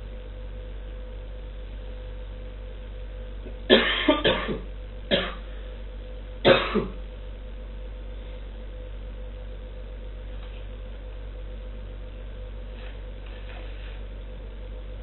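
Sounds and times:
low room hum: 0.0 - 15.0
person coughing: 3.7 - 5.5, 6.4 - 7.0.

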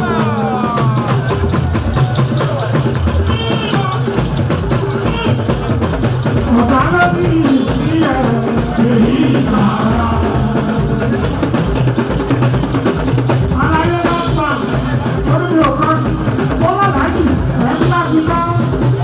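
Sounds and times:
drums and percussion: 0.0 - 19.0
live band music: 0.0 - 19.0
person singing: 6.5 - 11.8.

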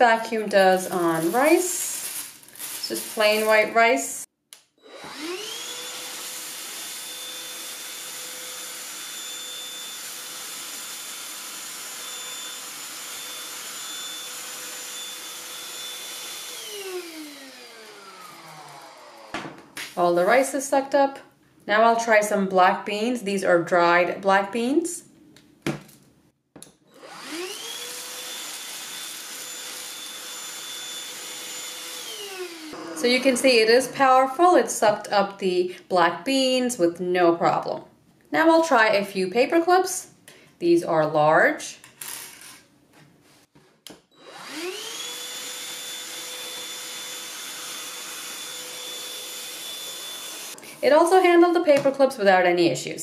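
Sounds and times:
hand vacuum motor whining: 0.4 - 3.7, 4.8 - 19.6, 26.9 - 35.1, 44.2 - 51.1.

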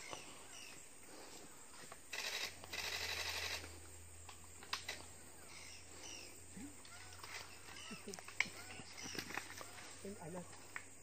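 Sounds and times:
faint bird chirps: 0.0 - 2.4, 5.2 - 10.7
camera shutter clicking: 2.2 - 3.6.

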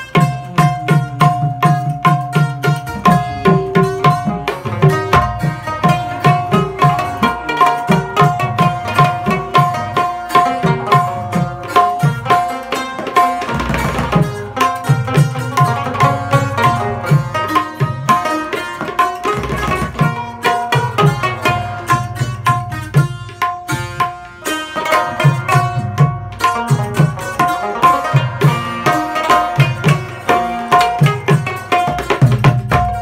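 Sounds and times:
plucked string melody: 0.0 - 33.0
tabla fast rhythmic strokes: 0.0 - 33.0.

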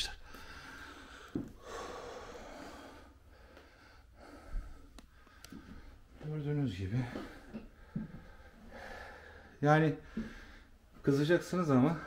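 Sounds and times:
man breathing hard: 0.2 - 6.2, 7.0 - 10.9.

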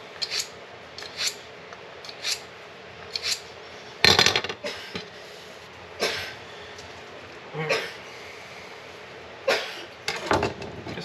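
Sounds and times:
knife drawn through sharpener: 0.2 - 1.4, 2.1 - 2.4, 3.1 - 3.4.

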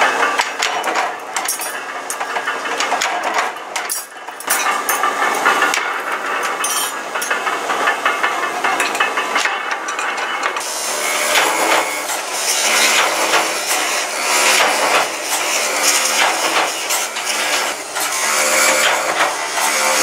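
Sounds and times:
metal grinding on abrasive wheel: 4.0 - 20.0.

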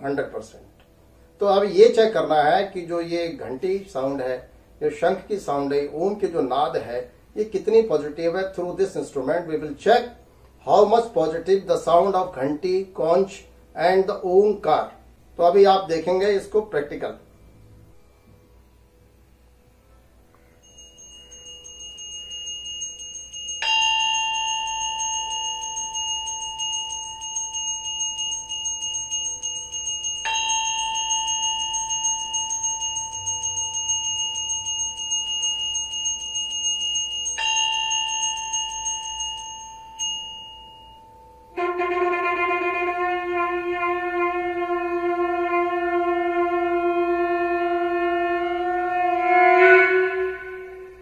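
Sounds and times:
metal hand bell ringing: 20.6 - 41.6
conch shell blown: 40.8 - 51.0.

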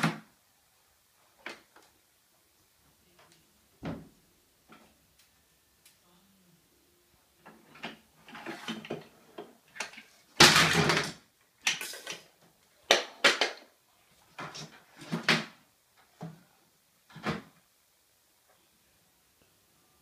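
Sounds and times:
plastic toys clattering: 9.7 - 13.7.

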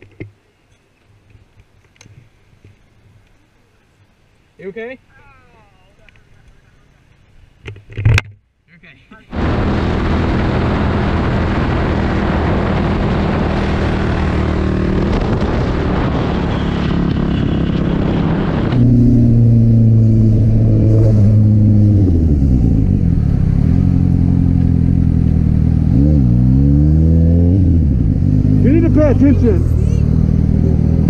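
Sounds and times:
wind rush: 9.3 - 23.6
motorcycle engine: 9.3 - 31.0.

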